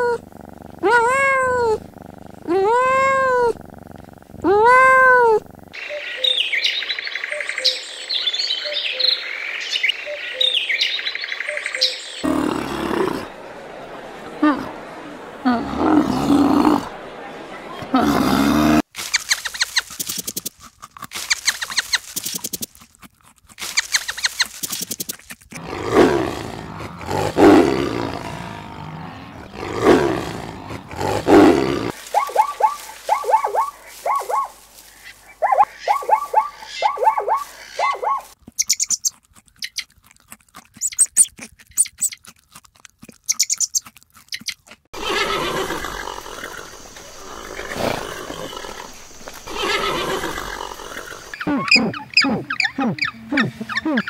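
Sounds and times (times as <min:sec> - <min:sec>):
long animal calls: 0:00.0 - 0:06.4, 0:12.2 - 0:13.8, 0:44.9 - 0:54.0
high-pitched chirps: 0:35.4 - 0:39.8.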